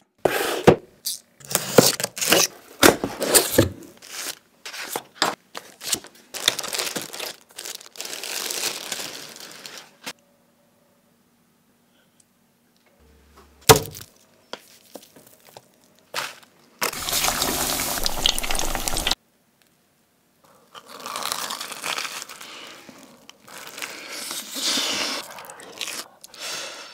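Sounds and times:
food deep-frying in hot oil: 16.8 - 19.2
crunching bites into crisp food: 20.6 - 24.6.

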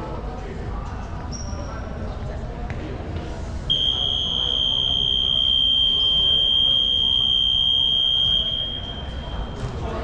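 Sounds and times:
murmur of crowd: 0.0 - 10.0
scoreboard buzzer tone: 3.7 - 9.3.

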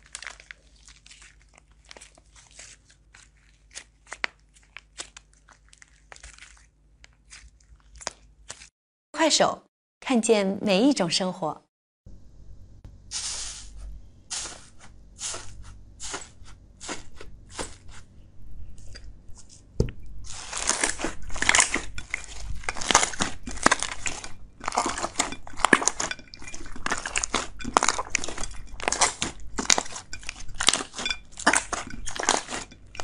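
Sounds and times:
crispy slime crackling and popping: 0.0 - 8.7, 20.3 - 26.2
soft thump: 19.8 - 20.0.

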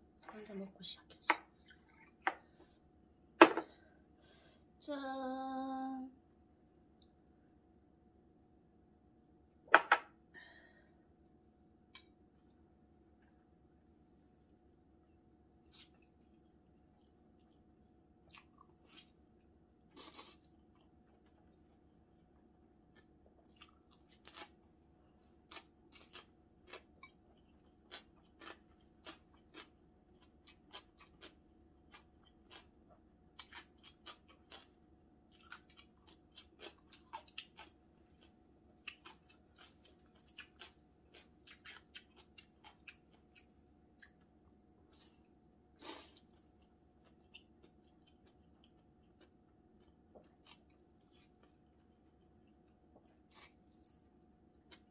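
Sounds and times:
person chewing with mouth clicks: 22.9 - 24.5, 25.4 - 54.9.

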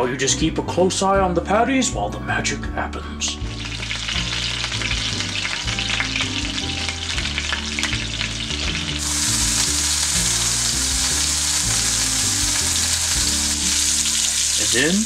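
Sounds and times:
burger patty sizzling in oil: 3.4 - 15.0.

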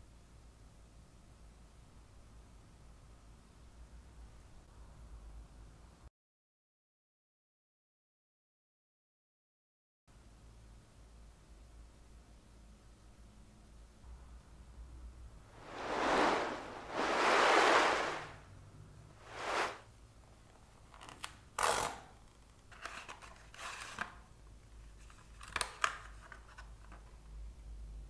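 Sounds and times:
packaging sliding swishes: 15.6 - 18.4, 19.2 - 19.8
paper rustling and scraping: 19.2 - 19.8.

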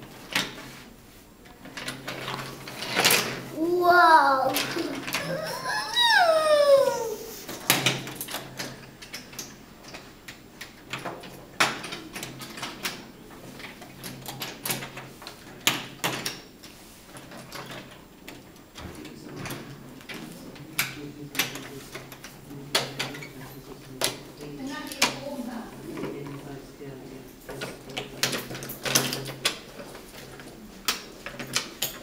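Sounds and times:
child's voice: 3.5 - 7.5
wooden toy pieces clacking: 3.9 - 6.2.

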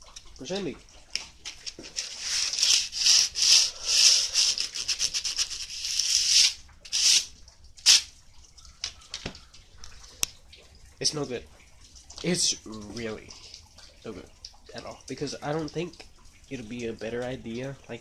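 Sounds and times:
sandpaper rubbing: 2.0 - 7.3, 7.9 - 8.1.

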